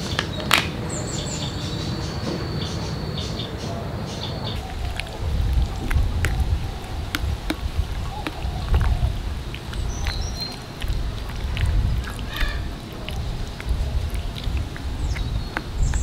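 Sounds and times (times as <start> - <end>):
low uneven rumble: 3.4 - 16.0.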